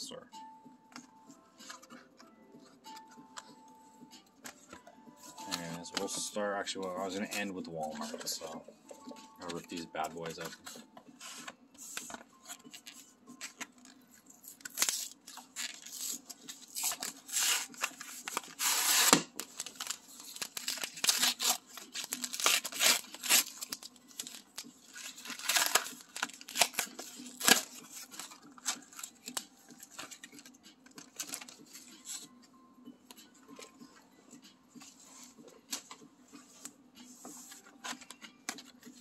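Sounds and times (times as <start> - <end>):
packaging ripping and crinkling: 12.8 - 31.6.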